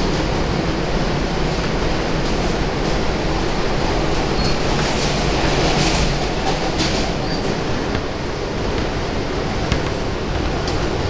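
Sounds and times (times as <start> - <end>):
subway wheels rumbling on rail: 0.0 - 11.0.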